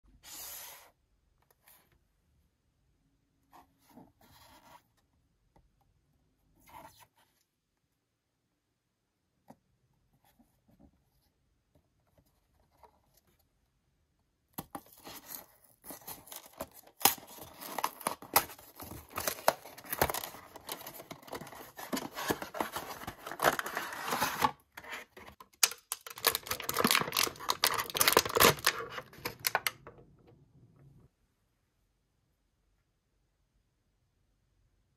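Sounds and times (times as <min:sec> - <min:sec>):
packaging tearing and crinkling: 0:15.0 - 0:29.7.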